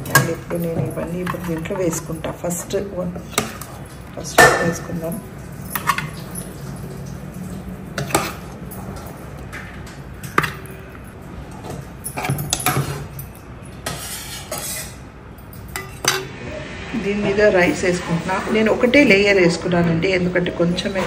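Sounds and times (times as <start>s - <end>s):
metal spoon scraping metal pot: 13.8s - 15.1s.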